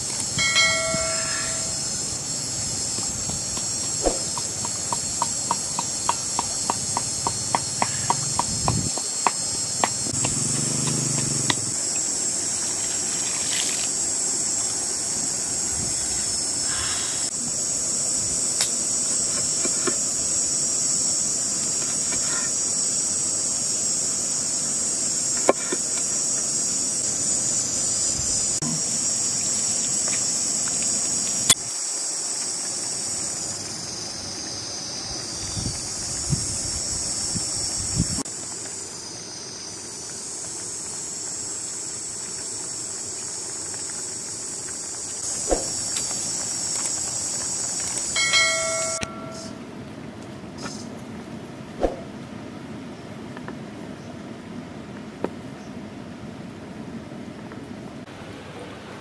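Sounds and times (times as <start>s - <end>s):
high-pitched insect drone: 0.0s - 49.7s
sharp knocks: 3.0s - 11.6s.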